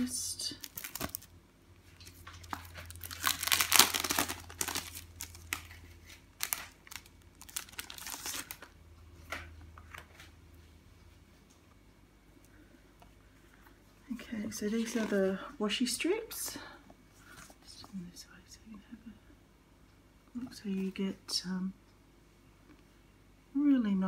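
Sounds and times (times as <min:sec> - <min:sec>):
plastic sleeves crinkling: 0:00.0 - 0:10.3, 0:14.1 - 0:15.5.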